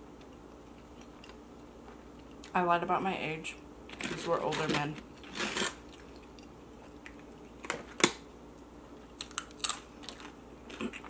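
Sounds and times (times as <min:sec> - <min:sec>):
chips crunching: 0:09.0 - 0:11.0.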